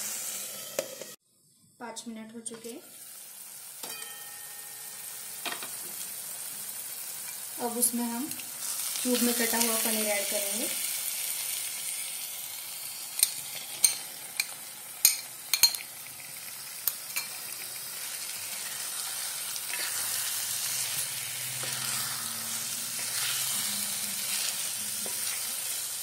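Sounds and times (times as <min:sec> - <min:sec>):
masala sizzling in a pan: 0:00.0 - 0:01.2, 0:01.8 - 0:26.0
wooden spatula scraping: 0:18.6 - 0:25.9.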